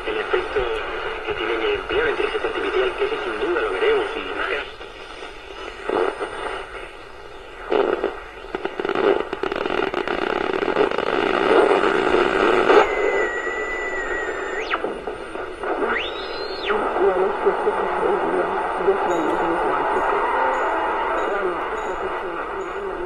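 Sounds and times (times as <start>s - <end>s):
radio static and hiss: 0.0s - 23.0s
high interference whistle: 12.7s - 17.2s.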